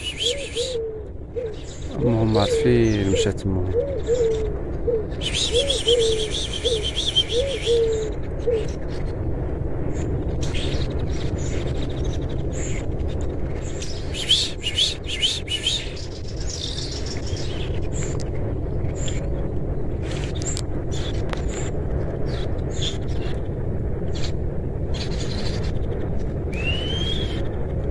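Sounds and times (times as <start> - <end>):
high rapid bird twitter: 0.0 - 0.9, 5.1 - 8.8, 13.6 - 17.8, 26.5 - 27.6
low hooting bird notes: 0.0 - 9.1, 26.5 - 27.6.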